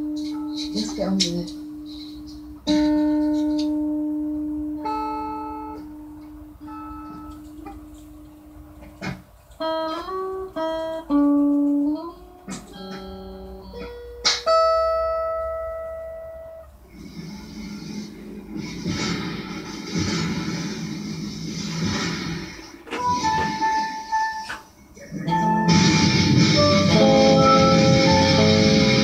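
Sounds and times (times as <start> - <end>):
electric guitar notes: 0.0 - 16.8, 23.0 - 29.0.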